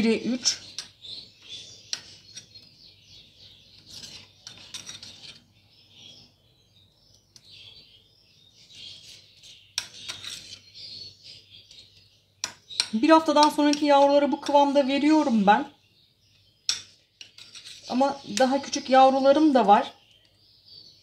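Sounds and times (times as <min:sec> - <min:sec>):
birds chirping: 0:00.0 - 0:21.0
spoon stirring and scraping bowl: 0:00.4 - 0:05.6, 0:08.6 - 0:14.6, 0:16.7 - 0:18.9.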